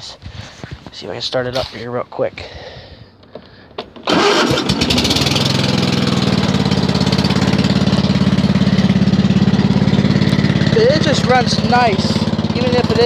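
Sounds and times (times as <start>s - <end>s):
mower engine starting and running: 3.4s - 13.0s.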